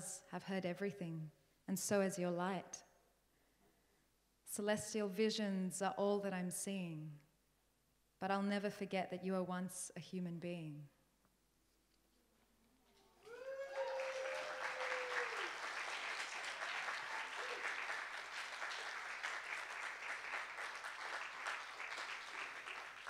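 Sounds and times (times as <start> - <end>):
person cheering: 13.2 - 15.8, 16.6 - 18.0
audience clapping: 13.2 - 23.0.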